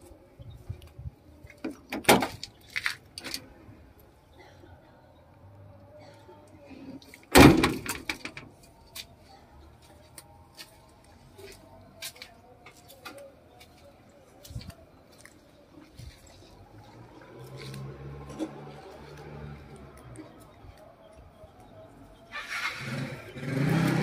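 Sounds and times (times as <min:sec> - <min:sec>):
footsteps on gravel and weeds: 0:02.4 - 0:03.1, 0:09.8 - 0:20.5
truck door slamming: 0:07.3 - 0:08.4.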